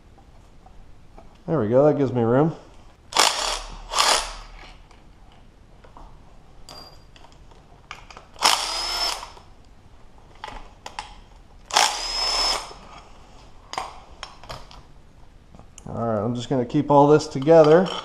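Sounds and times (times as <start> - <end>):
electric impact wrench bursts: 3.1 - 4.6, 8.4 - 9.4, 11.7 - 12.8.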